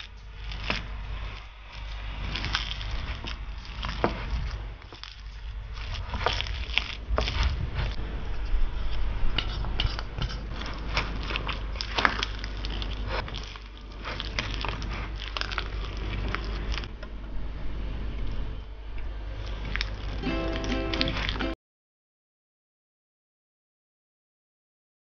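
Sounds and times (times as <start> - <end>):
spatula scraping bowl: 0.0 - 16.8
wet squishing of mashed potato: 0.0 - 17.0, 19.4 - 21.6.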